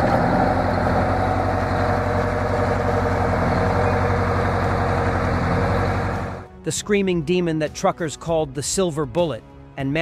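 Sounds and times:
diesel truck engine idling: 0.0s - 6.5s.

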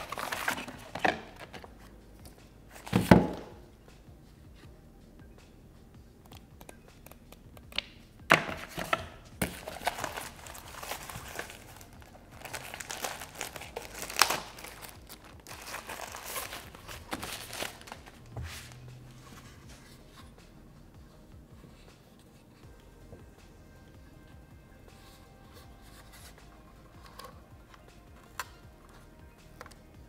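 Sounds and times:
plastic bag crinkling: 9.5s - 18.2s.

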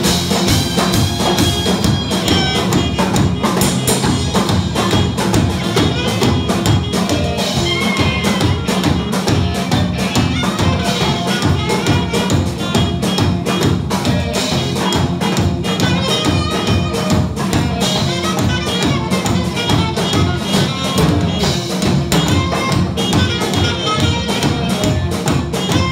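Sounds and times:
drum kit beat: 0.0s - 25.9s
electric guitars: 0.0s - 25.9s
live band playing amplified music: 0.0s - 25.9s.

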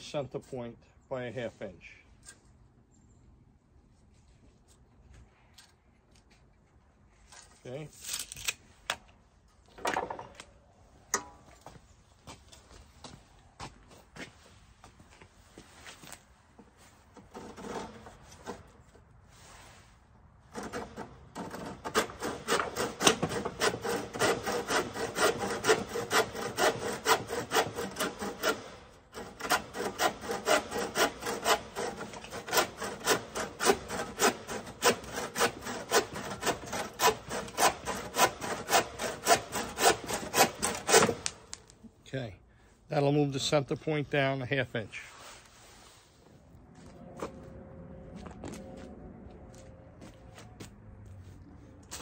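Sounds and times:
handsaw cutting wood: 20.5s - 41.4s.

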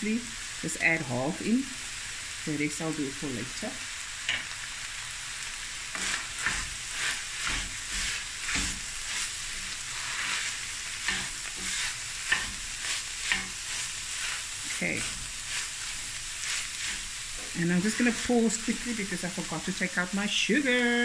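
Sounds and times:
mince sizzling: 0.0s - 21.0s
wooden spoon scraping a pan: 5.9s - 19.6s.

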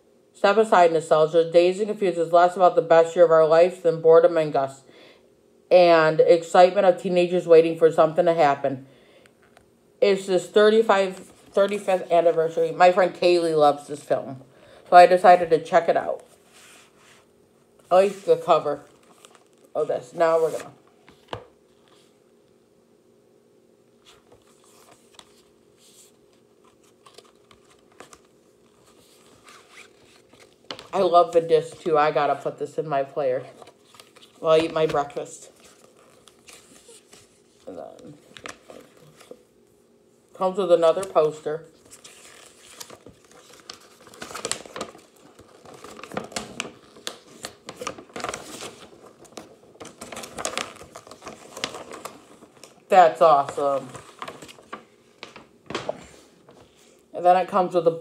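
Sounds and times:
paper rustling and crinkling: 16.1s - 22.2s, 24.0s - 31.0s, 33.4s - 39.4s, 40.9s - 56.9s
packaging rustling and clicking: 41.8s - 52.8s.

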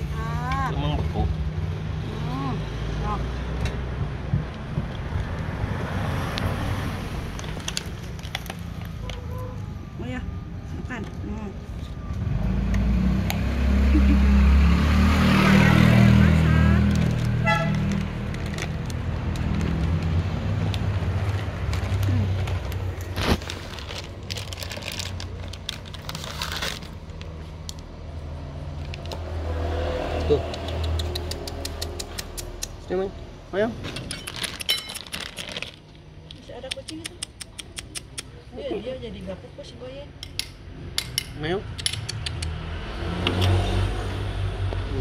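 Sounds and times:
plastic bag crinkling: 16.9s - 20.1s, 21.2s - 27.4s, 34.1s - 36.0s.

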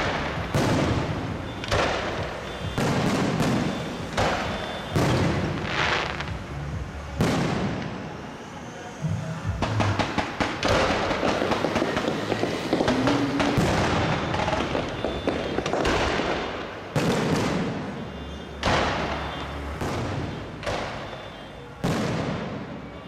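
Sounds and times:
fireworks crackling pops: 0.0s - 8.1s, 9.6s - 22.9s
loud firework shell bursts: 9.6s - 18.0s, 18.6s - 22.9s.

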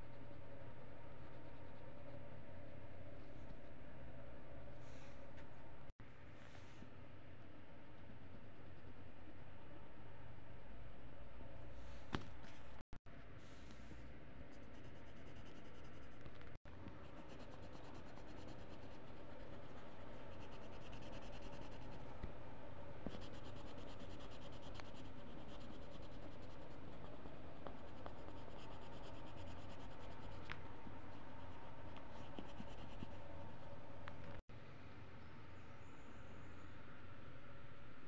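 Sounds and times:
pencil scratching on paper: 17.0s - 22.1s, 23.1s - 33.3s.

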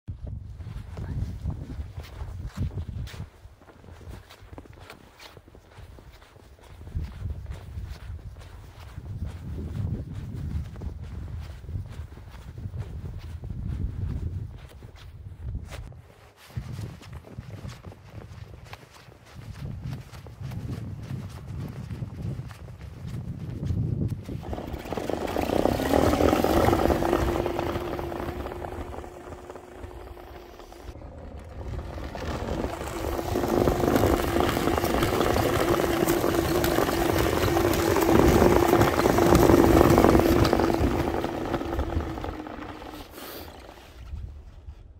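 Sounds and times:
track in snow: 0.1s - 44.9s
electric motor whine: 24.4s - 44.1s.

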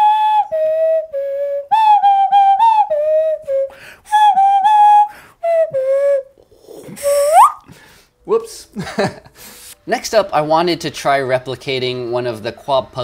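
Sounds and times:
nose flute tune: 0.0s - 7.8s.

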